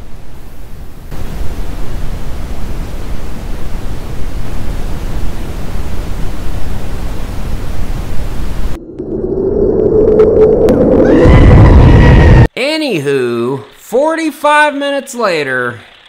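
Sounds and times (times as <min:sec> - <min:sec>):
static hiss: 0:00.0 - 0:08.8
low rumble: 0:08.6 - 0:12.5.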